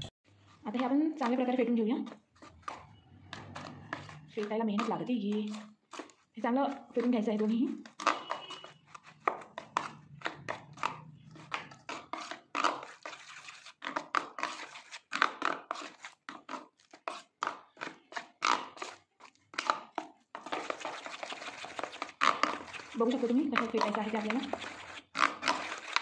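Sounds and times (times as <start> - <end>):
spoon beating batter in bowl: 0.3 - 26.0.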